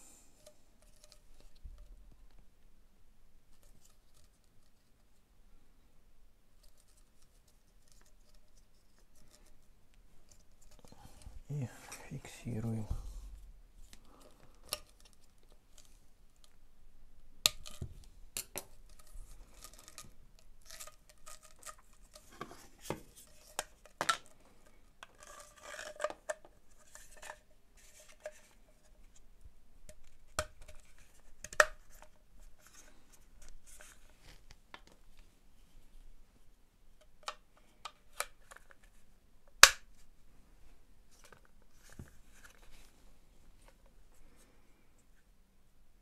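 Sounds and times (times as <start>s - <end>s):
plastic parts clicking and knocking: 13.9s - 16.6s, 17.4s - 28.9s, 29.8s - 35.0s.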